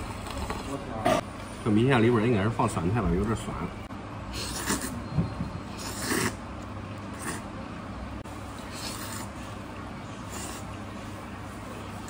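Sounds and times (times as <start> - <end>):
steady low hum: 0.0 - 12.0
slurping noodles: 4.3 - 5.0, 5.7 - 6.4, 7.1 - 7.5, 8.6 - 9.6.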